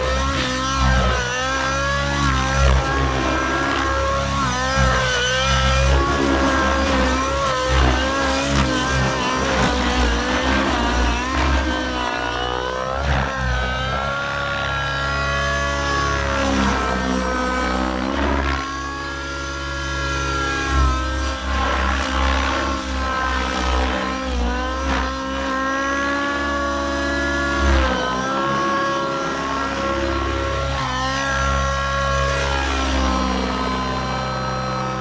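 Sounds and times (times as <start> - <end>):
rc helicopter engine and rotors whining: 0.0 - 35.0.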